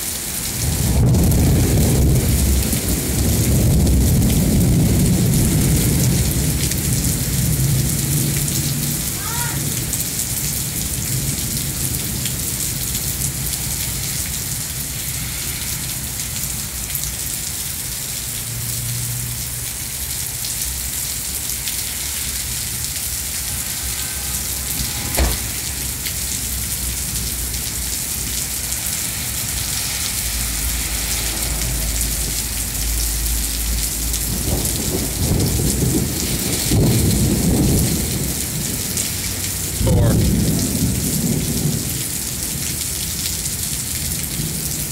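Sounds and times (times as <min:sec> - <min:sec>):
heavy rain on pavement: 0:00.0 - 0:44.9
thunder rumbling: 0:00.5 - 0:14.9, 0:22.2 - 0:42.7
sharp thunder crack: 0:24.4 - 0:26.9.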